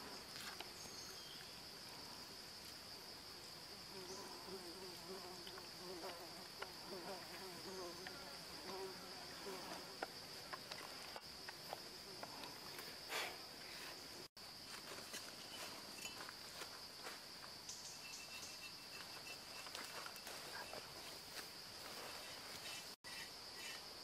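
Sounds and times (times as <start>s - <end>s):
insect chorus drone: 0.0s - 24.0s
fly buzzing: 3.7s - 11.2s.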